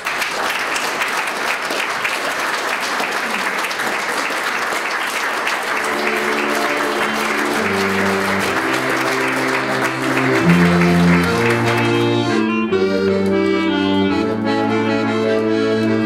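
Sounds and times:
audience applauding: 0:00.0 - 0:13.4
music with long held notes: 0:05.7 - 0:16.0.

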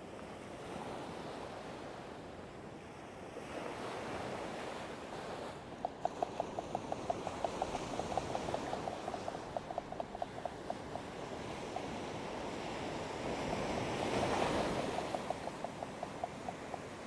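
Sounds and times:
surf washing: 0:03.4 - 0:17.0
fishing reel ticking: 0:05.8 - 0:12.3, 0:14.1 - 0:17.0.

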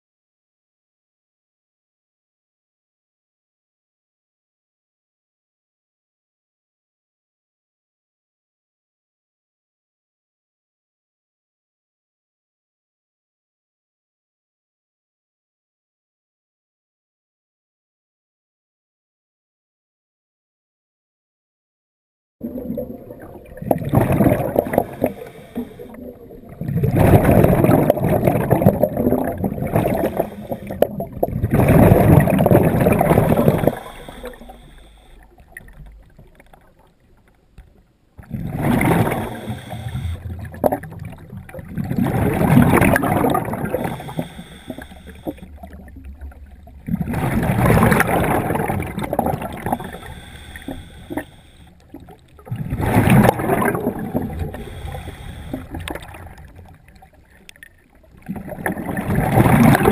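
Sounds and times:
underwater bubbles gurgling: 0:22.4 - 0:59.9.

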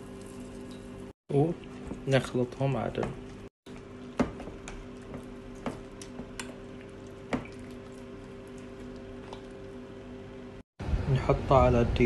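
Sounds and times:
wet squelching of stirred paste: 0:03.2 - 0:09.9.

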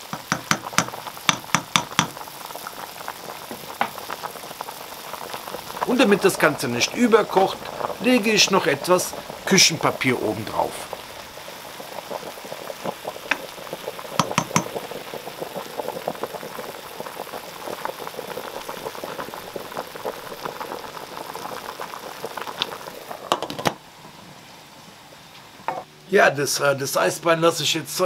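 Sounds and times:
pot boiling hard: 0:00.0 - 0:24.2
knocks: 0:00.1 - 0:02.2, 0:14.2 - 0:14.7.

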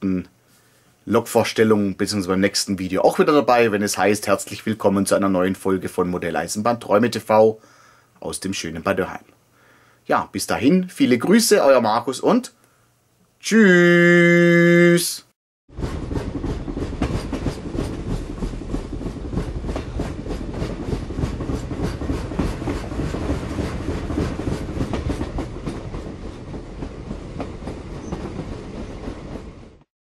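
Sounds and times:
train rumbling on track: 0:15.7 - 0:29.9.

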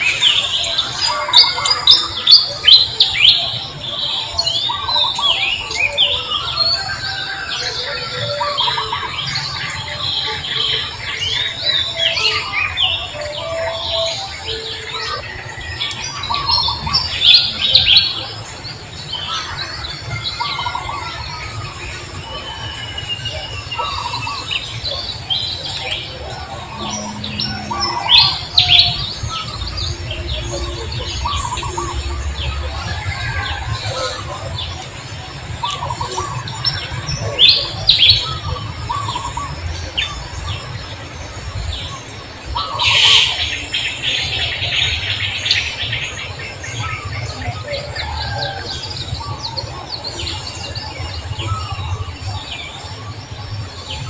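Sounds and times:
birds chirping: 0:00.0 - 0:54.0.

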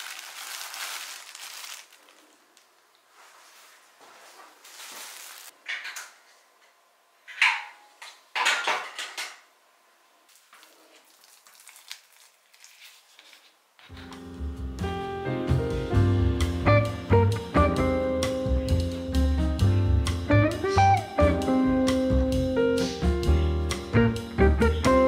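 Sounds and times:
background music: 0:13.9 - 0:25.0.

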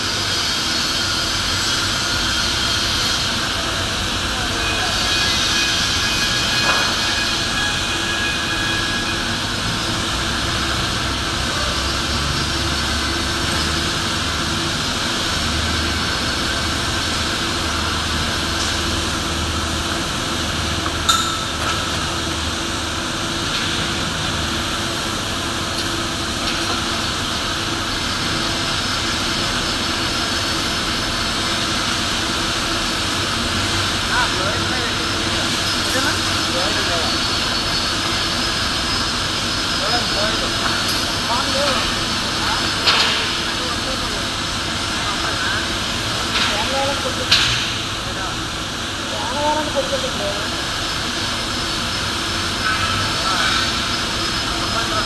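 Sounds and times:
industrial machinery drone: 0:00.0 - 0:55.0
sharp metallic knock: 0:21.1 - 0:21.4.

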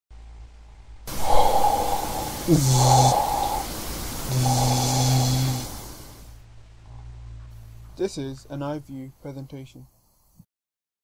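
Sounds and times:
snort-like noisy rush: 0:01.1 - 0:07.3.

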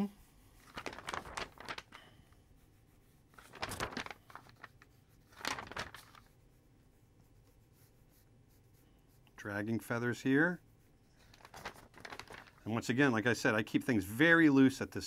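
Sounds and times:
paper sheets rustling: 0:00.5 - 0:02.2, 0:03.3 - 0:06.4, 0:11.1 - 0:12.9
pencil scratching on paper: 0:02.4 - 0:03.5, 0:06.2 - 0:11.6.

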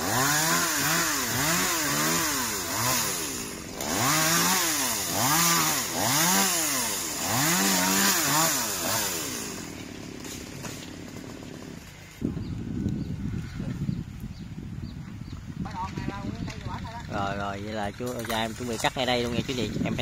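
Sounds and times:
chainsaw revving: 0:00.0 - 0:12.2.

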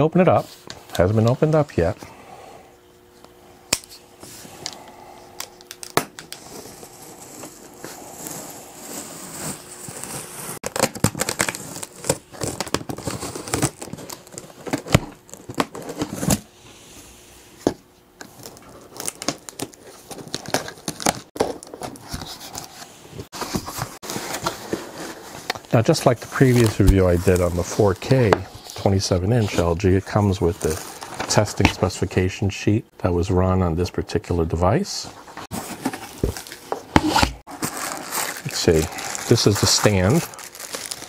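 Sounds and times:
cardboard tearing and crinkling: 0:05.7 - 0:16.5, 0:18.3 - 0:31.8, 0:35.4 - 0:41.0
knife cutting cardboard: 0:06.4 - 0:13.9.

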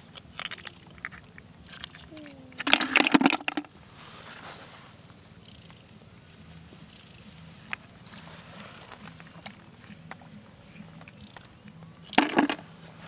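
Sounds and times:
low steady hum: 0:00.0 - 0:13.0
hands rustling grass: 0:03.6 - 0:13.0.

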